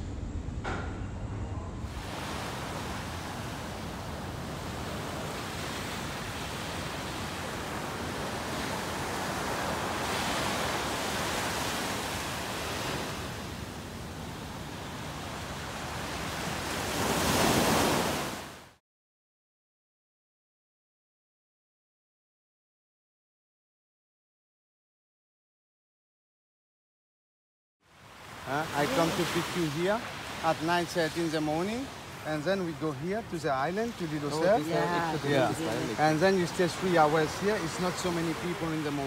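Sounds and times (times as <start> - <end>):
waves breaking on sandy beach: 1.9 - 18.8, 27.9 - 39.0.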